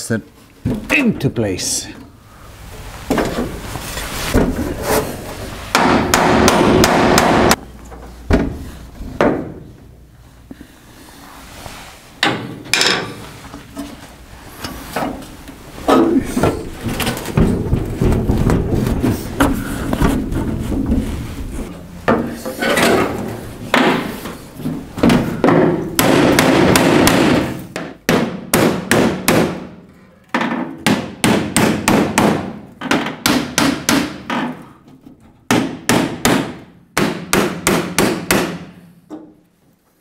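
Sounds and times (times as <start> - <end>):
metal door rattling and scraping: 16.2 - 25.9.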